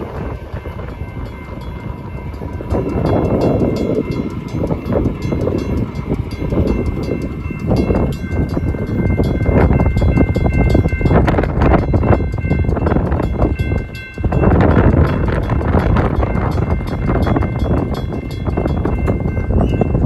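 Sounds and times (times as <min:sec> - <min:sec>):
mechanical bell ringing rapidly: 0:00.7 - 0:20.0.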